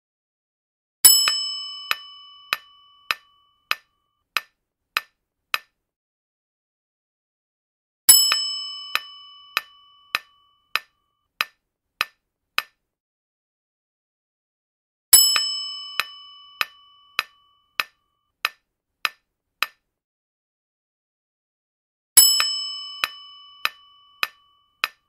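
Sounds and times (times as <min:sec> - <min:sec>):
bell-like chime: 0:01.1 - 0:03.7, 0:08.2 - 0:10.8, 0:15.2 - 0:17.8, 0:22.2 - 0:24.8.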